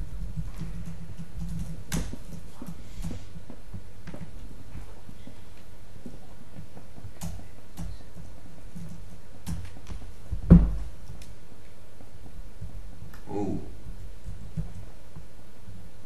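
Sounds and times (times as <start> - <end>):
low room hum: 0.0 - 16.0
thump: 10.4 - 10.9.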